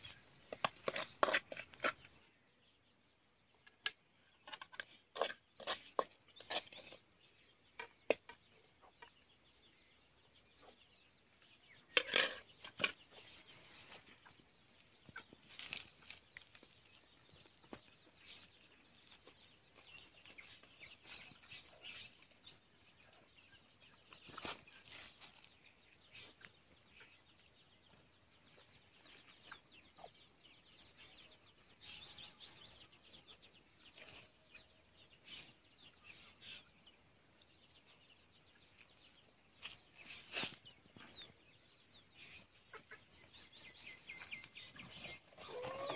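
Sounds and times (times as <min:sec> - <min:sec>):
birds chirping: 0:00.0 - 0:45.9
fowl clucking: 0:45.4 - 0:45.9.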